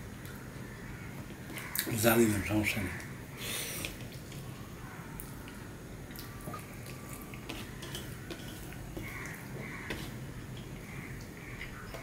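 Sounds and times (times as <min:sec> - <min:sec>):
person chewing wet food: 0:03.8 - 0:12.0
fingers squishing food on steel plate: 0:06.8 - 0:12.0.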